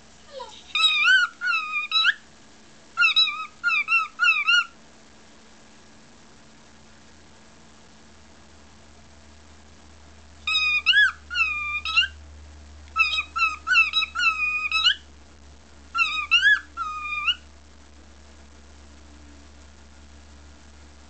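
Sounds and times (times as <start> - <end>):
low steady hum: 0.0 - 21.0
cockatiel whistling: 0.7 - 2.2, 3.0 - 4.7, 10.5 - 12.2, 13.0 - 15.0, 16.0 - 17.4.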